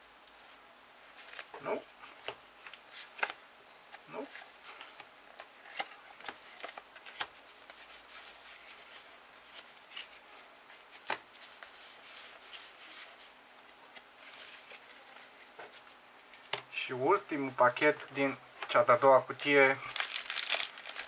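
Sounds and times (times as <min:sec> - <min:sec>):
foil wrapper crinkling and tearing: 0:19.8 - 0:21.0
trading cards being handled: 0:19.8 - 0:21.0.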